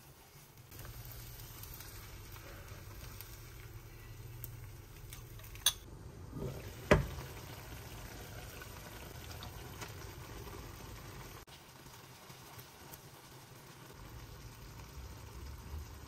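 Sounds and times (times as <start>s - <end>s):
food bubbling and hissing: 0.0s - 16.0s
utensil clink: 5.1s - 5.9s.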